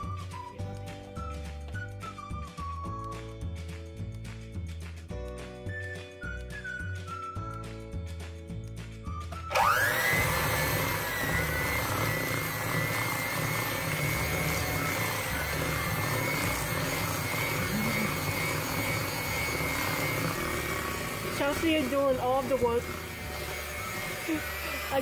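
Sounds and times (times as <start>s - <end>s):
electric hand mixer whining: 0.0s - 3.0s, 9.4s - 25.0s
background music: 0.0s - 25.0s.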